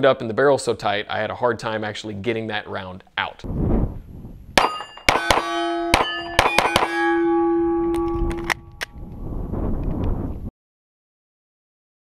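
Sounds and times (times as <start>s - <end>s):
pistol shots: 4.6s - 7.4s
steel plates ringing: 4.6s - 8.8s.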